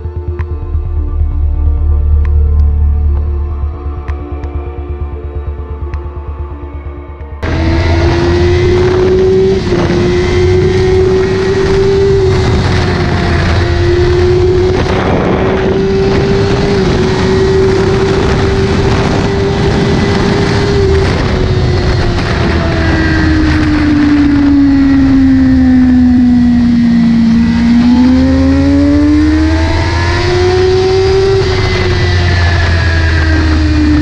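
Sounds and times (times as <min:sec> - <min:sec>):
motorcycle engine at high revs: 0:07.4 - 0:34.0
wind rushing on microphone: 0:07.4 - 0:34.0.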